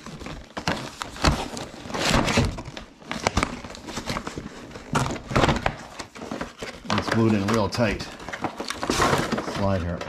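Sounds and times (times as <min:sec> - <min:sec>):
packaging rustling and crinkling: 0:00.0 - 0:10.0.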